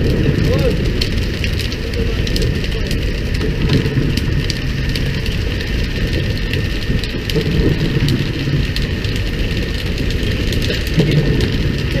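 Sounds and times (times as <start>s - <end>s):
low rumble: 0.0s - 12.0s
water pattering on sea surface: 0.0s - 12.0s.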